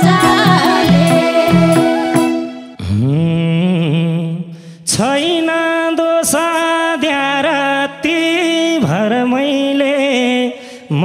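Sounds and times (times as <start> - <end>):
ornamented folk melody: 0.0 - 2.8
sharp drum hits: 0.0 - 2.8.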